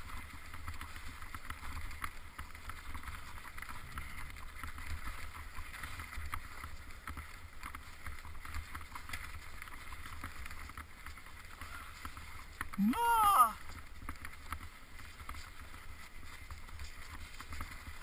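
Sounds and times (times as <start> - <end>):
person crying out: 12.8 - 13.6.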